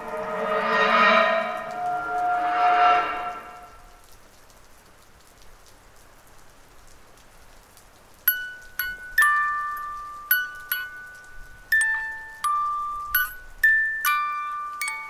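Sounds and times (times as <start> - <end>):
faint crackling hiss: 3.6 - 15.0
high bell-like chimes: 8.3 - 15.0.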